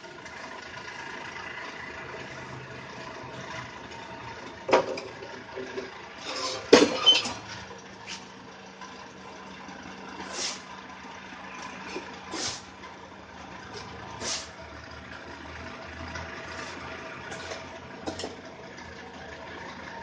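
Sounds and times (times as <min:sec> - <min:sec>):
rushing scraping noises: 0:06.2 - 0:07.4
loud metal clanks: 0:06.3 - 0:07.5.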